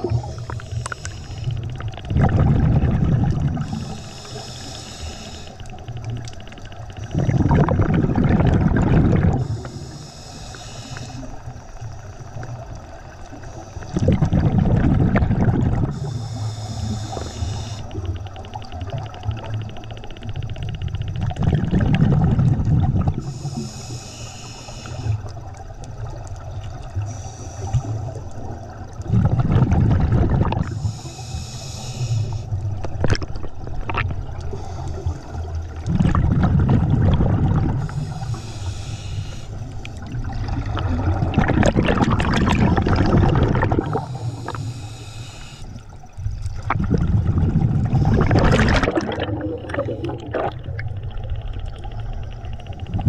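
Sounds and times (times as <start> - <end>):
regulator hissing inhale: 0.0 - 1.9, 3.5 - 7.1, 9.4 - 12.4, 13.3 - 14.0, 15.8 - 18.4, 23.1 - 25.5, 27.0 - 28.4, 30.6 - 32.9, 34.4 - 35.7, 37.6 - 40.2, 43.7 - 46.2
gurgling exhaled bubbles: 0.0 - 10.2, 12.2 - 24.1, 24.8 - 53.0.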